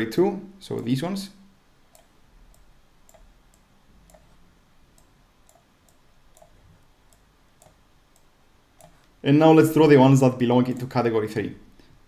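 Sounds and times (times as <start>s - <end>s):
computer mouse clicks: 1.9s - 9.2s, 10.7s - 11.0s.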